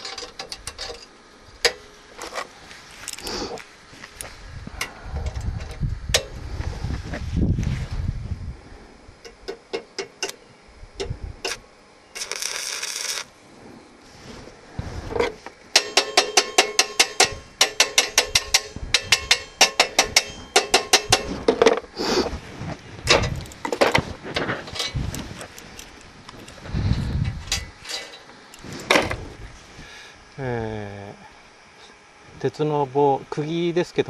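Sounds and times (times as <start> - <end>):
welding clicks and crackles: 0.0 - 6.4, 9.2 - 10.4, 11.0 - 13.4, 15.1 - 21.9, 22.8 - 29.2
welding arc hiss: 0.0 - 34.0.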